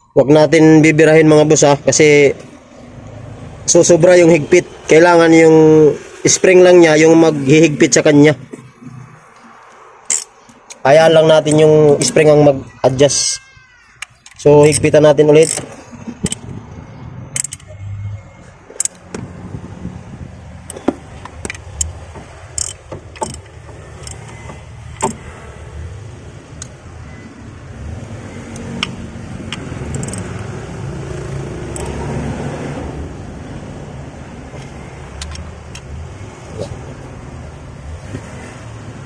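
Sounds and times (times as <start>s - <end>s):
socket wrench clicks: 9.5s - 12.3s, 14.0s - 16.6s, 17.3s - 17.8s, 18.8s - 19.2s, 20.6s - 25.2s, 28.4s - 30.4s, 31.7s - 32.0s, 34.6s - 35.9s.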